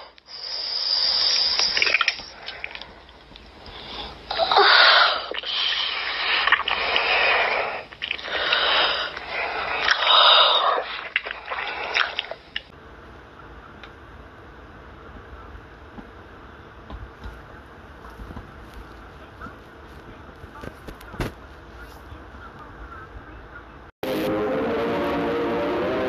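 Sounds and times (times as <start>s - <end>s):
steady hiss: 0.0s - 12.7s
wet slurping and licking: 1.0s - 3.2s, 4.3s - 12.7s.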